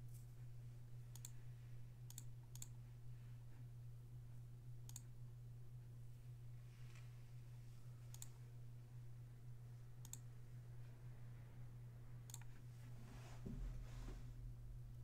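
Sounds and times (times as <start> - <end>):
steady low hum: 0.0 - 15.0
soft rustle: 12.7 - 14.4.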